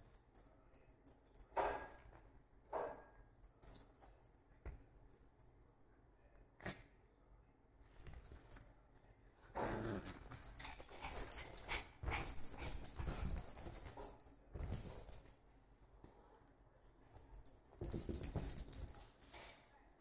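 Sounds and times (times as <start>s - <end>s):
small dog growling: 9.5s - 10.3s
collar jingling: 10.0s - 15.3s, 17.2s - 19.4s.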